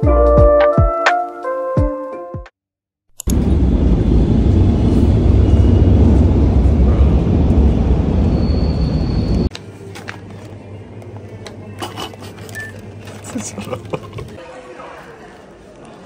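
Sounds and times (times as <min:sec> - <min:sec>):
underground train rumble: 0:03.3 - 0:09.5.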